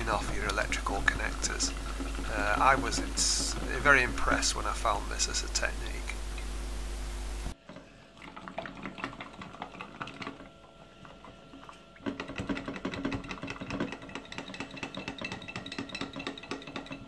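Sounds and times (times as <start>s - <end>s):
liquid sloshing: 0.0s - 6.6s, 7.5s - 17.0s
steady hiss: 0.0s - 7.6s.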